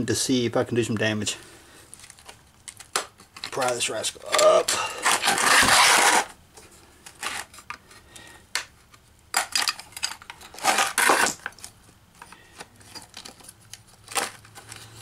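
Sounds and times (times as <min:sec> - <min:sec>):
metal scrape: 0:04.8 - 0:06.3.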